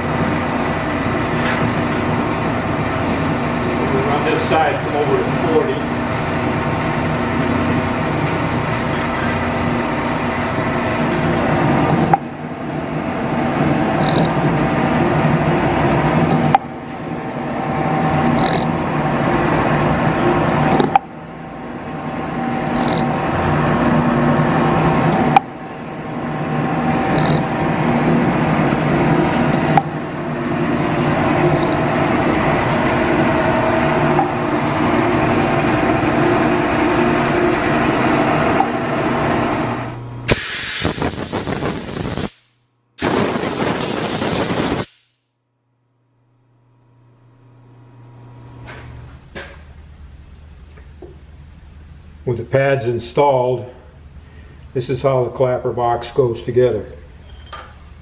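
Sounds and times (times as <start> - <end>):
metal planer cutting steel: 0.0 - 39.9
whine of gears and belts: 0.0 - 40.3, 48.4 - 58.0
harsh hiss: 40.3 - 42.4, 43.0 - 44.9.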